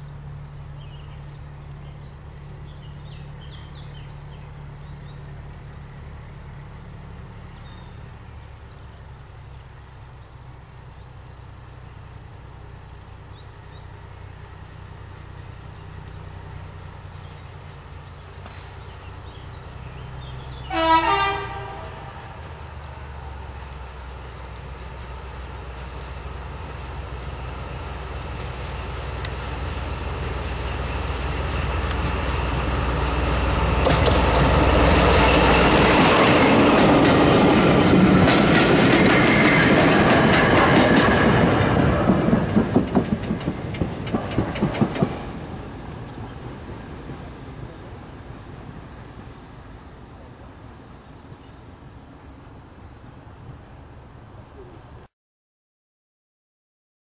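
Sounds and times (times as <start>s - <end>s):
diesel locomotive engine drone: 0.0s - 55.1s
locomotive horn blast: 20.6s - 22.4s
train wheels clicking over rails: 23.3s - 49.6s.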